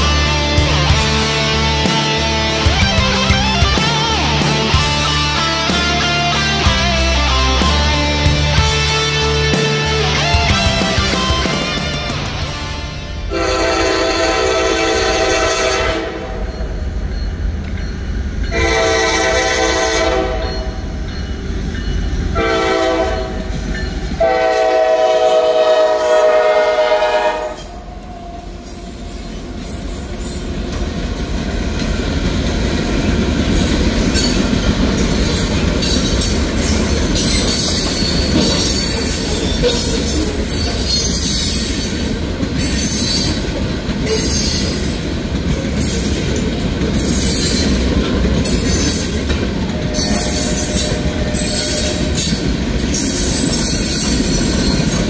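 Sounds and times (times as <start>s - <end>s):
train wheels running on rails: 0.0s - 55.0s
locomotive air horn blasts: 13.3s - 16.5s, 18.5s - 20.8s, 22.4s - 23.5s, 24.2s - 27.8s.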